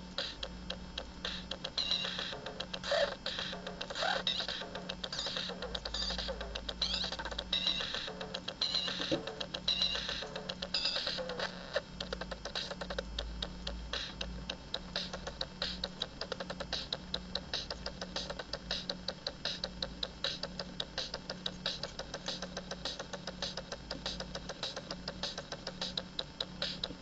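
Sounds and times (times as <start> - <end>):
sharp electronic clicks: 0.1 - 27.0.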